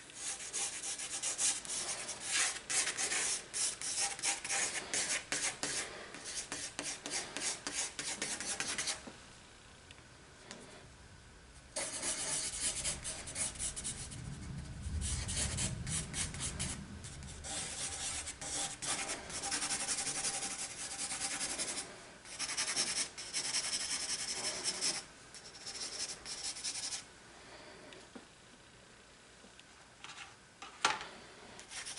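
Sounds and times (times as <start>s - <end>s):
pencil scribbling on paper: 0.2s - 9.0s, 11.8s - 14.1s, 17.4s - 27.0s.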